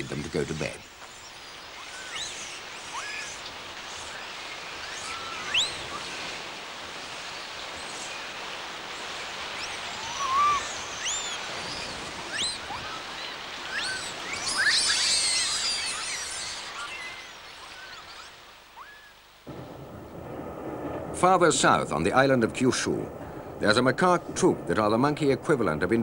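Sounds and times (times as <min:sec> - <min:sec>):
steady hiss: 0:00.0 - 0:26.0
high chirping animal calls: 0:01.3 - 0:06.1, 0:09.5 - 0:19.2.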